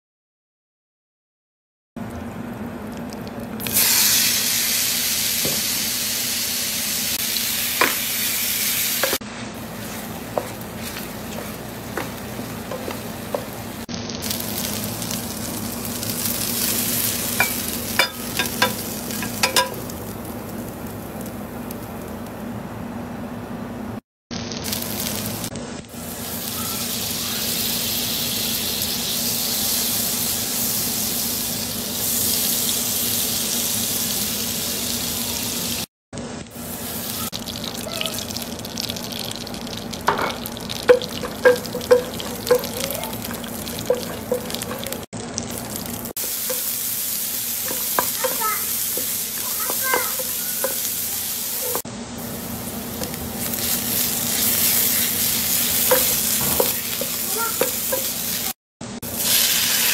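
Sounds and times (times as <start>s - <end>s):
butter sizzling in oil: 3.6s - 22.2s, 24.3s - 59.9s
chicken sizzling in a pan: 3.6s - 22.2s, 24.3s - 59.9s
clinks into a glass bowl: 17.4s - 19.8s.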